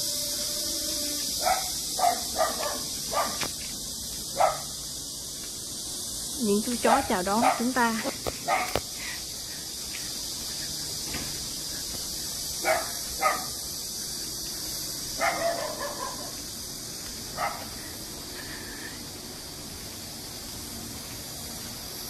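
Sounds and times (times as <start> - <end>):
dogs barking: 1.4 - 3.5, 4.3 - 4.8, 6.9 - 7.8, 8.4 - 8.8, 12.6 - 13.6, 15.2 - 16.4, 17.3 - 17.7.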